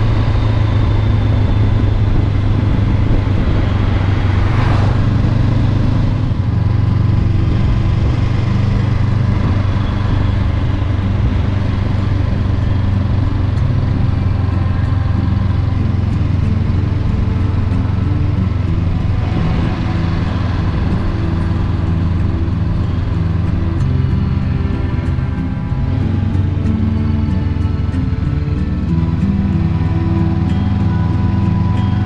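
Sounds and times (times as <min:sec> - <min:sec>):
motorcycle engine running: 0:00.0 - 0:32.0
road noise: 0:00.0 - 0:32.0
wind noise: 0:00.0 - 0:32.0.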